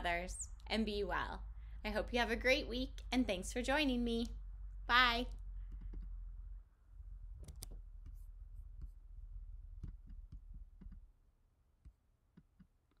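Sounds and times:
computer mouse clicks: 7.4s - 7.8s, 9.8s - 11.1s.

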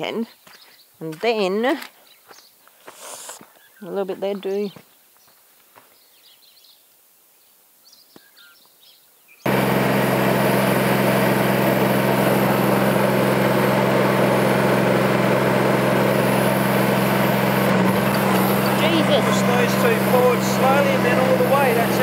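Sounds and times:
faint bird chirps: 3.4s - 9.4s
excavator engine running: 9.5s - 22.0s.

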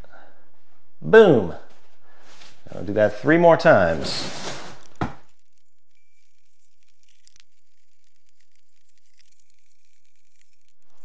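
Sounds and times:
plastic packaging crinkling: 3.7s - 11.0s
small ticks: 4.8s - 11.0s.

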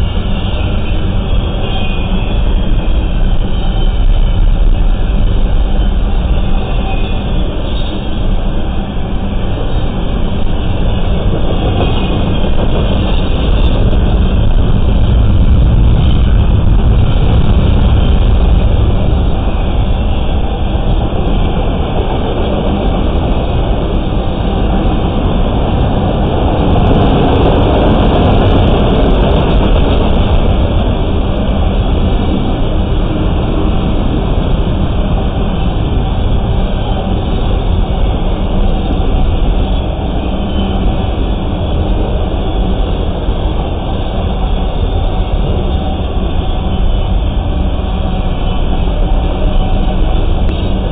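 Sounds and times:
train wheels rumbling on rails: 0.0s - 50.9s.

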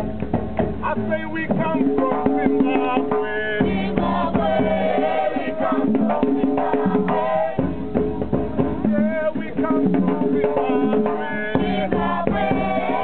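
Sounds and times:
hand drums and rattles: 0.0s - 13.0s
voices singing: 1.0s - 13.0s.

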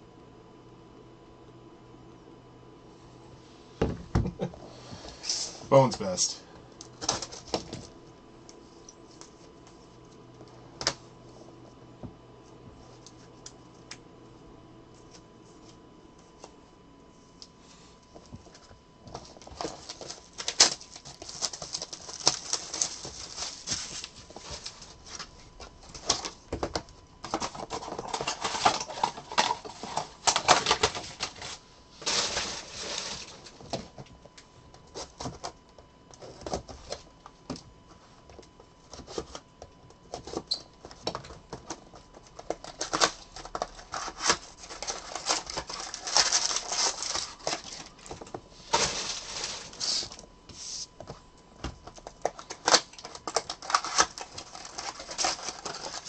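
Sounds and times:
wrappers crinkling and tearing: 19.2s - 26.4s, 41.8s - 50.2s, 52.0s - 56.0s.

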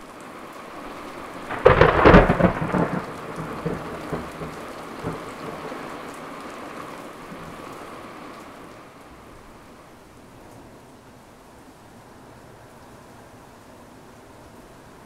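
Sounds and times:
steady rain: 0.0s - 15.0s
thunder rumbling: 1.4s - 6.0s.

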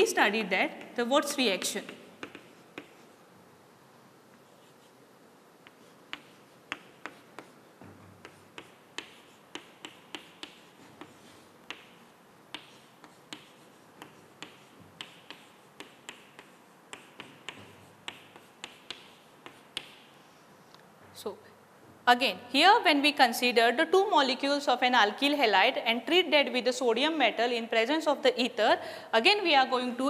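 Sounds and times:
chalk tapping and scraping on chalkboard: 0.7s - 3.3s, 4.3s - 5.0s, 5.6s - 20.5s.

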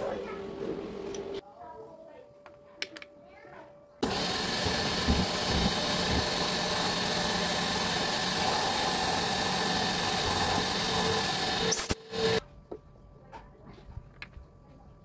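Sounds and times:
milling machine cutting metal: 4.0s - 12.4s.

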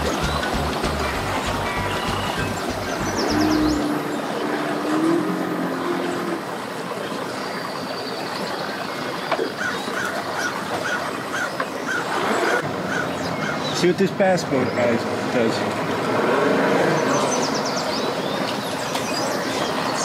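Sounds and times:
outboard motors idling: 0.0s - 6.8s
churning water: 0.0s - 20.0s.

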